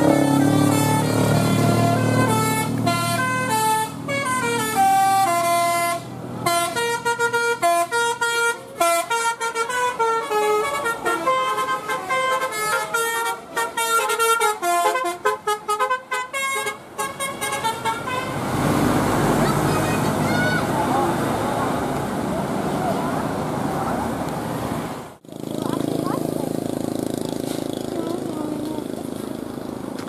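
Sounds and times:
air horns playing a melody: 0:00.0 - 0:18.6
low engine rumble: 0:17.8 - 0:30.0.

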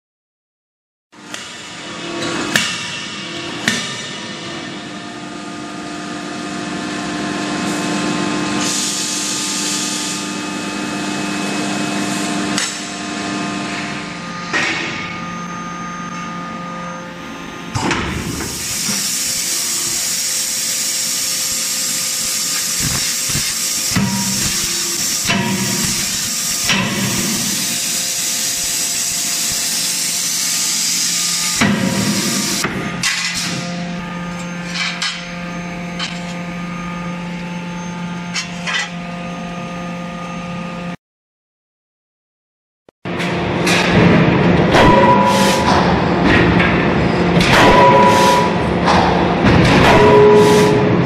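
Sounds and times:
machinery hum: 0:01.2 - 0:41.0, 0:43.1 - 0:51.0
hiss: 0:18.5 - 0:31.2
forging hammer banging: 0:43.6 - 0:51.0.

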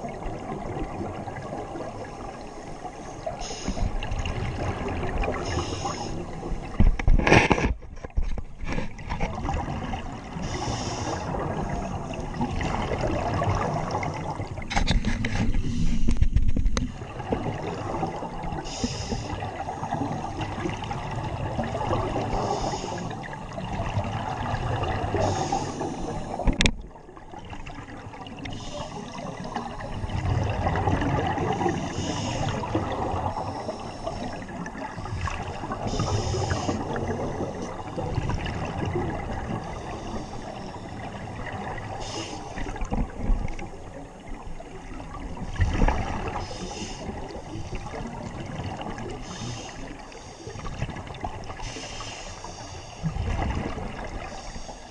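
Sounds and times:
underwater regulator bubbles gurgling: 0:00.0 - 0:54.9.

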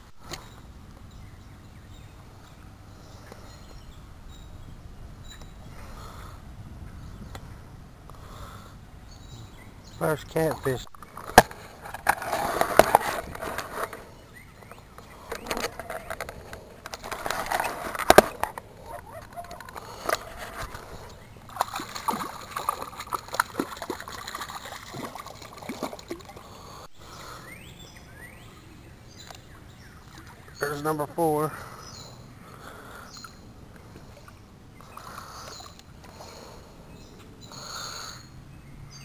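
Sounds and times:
fish splashing in water: 0:21.5 - 0:26.6.

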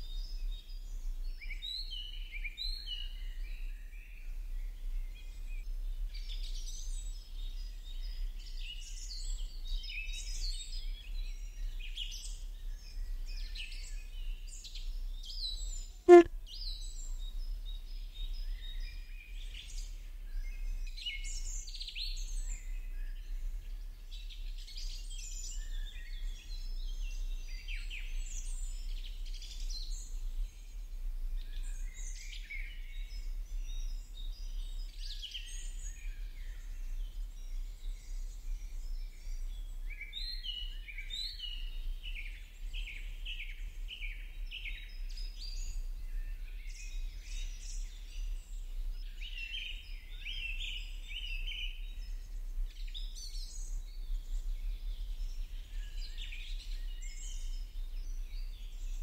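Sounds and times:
small birds chirping: 0:10.9 - 0:19.6.

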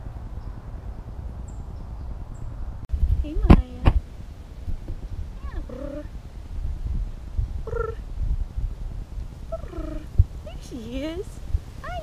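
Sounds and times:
cougar calls: 0:05.4 - 0:06.1, 0:07.6 - 0:08.0, 0:09.5 - 0:10.2.

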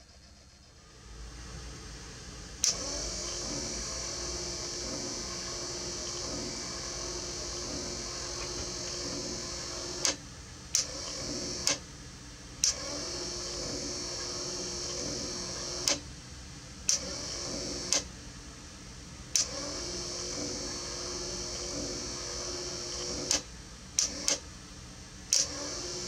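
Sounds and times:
electric motor whirring: 0:02.6 - 0:10.2, 0:19.4 - 0:23.4.

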